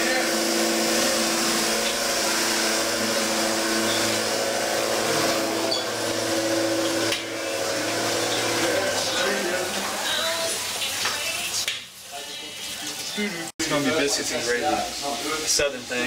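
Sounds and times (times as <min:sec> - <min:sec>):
electric hand mixer whining: 0:00.0 - 0:10.8.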